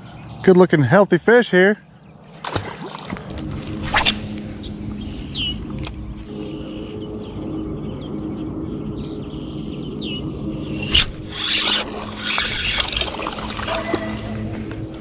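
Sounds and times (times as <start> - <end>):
high insect drone: 0.0 - 15.0
low steady hum: 1.9 - 15.0
down-slurred bird calls: 6.3 - 14.5.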